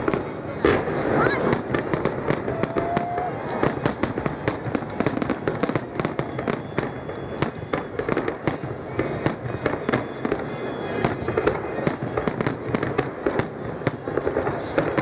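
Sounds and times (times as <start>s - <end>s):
fireworks bursting with bangs: 0.0s - 15.0s
fireworks crackle and echo: 0.0s - 15.0s.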